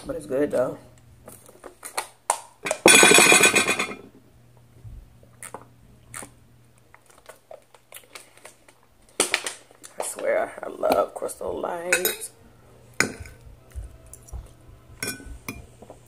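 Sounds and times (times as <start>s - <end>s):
tableware clinking on plate: 2.7s - 4.1s, 11.9s - 12.3s, 13.0s - 13.3s, 15.0s - 15.7s.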